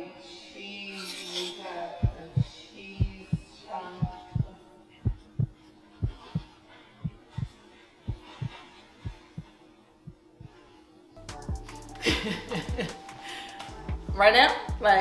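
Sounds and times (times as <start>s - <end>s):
heartbeat thumps: 2.0s - 9.5s, 11.3s - 13.0s, 13.7s - 15.0s.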